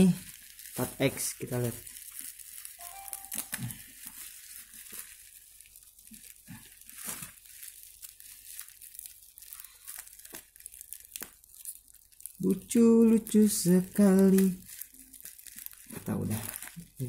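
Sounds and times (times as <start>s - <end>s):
bubble wrap crinkling: 0.0s - 17.0s.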